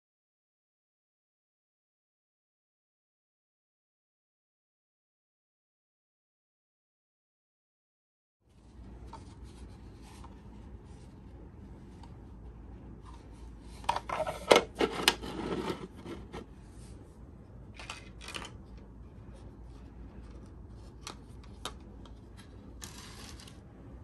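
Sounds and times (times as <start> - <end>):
plastic parts clicking on workbench: 17.8 - 18.8.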